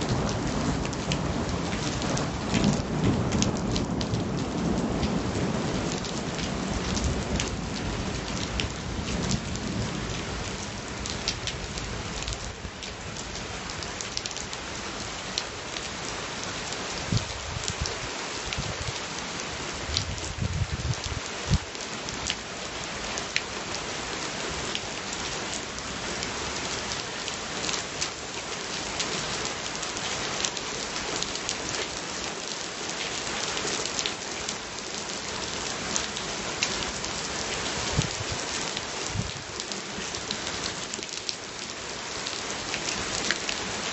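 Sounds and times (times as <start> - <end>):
low rumble of thunder: 0.0 - 12.3, 19.8 - 21.7
heavy rain falling: 0.0 - 43.9
raindrops hitting a surface: 0.0 - 43.9.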